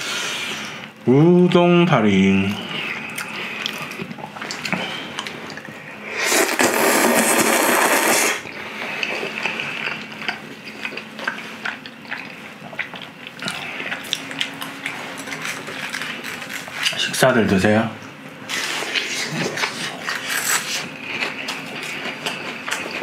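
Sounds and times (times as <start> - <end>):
chewing: 2.6 - 5.9, 7.8 - 17.1, 18.4 - 23.0
person slurping noodles: 6.0 - 8.4.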